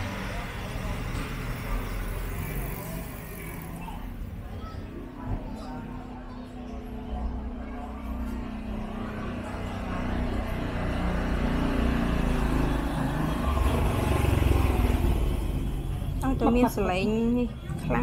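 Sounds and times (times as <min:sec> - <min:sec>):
vehicle engine passing: 0:06.9 - 0:17.0.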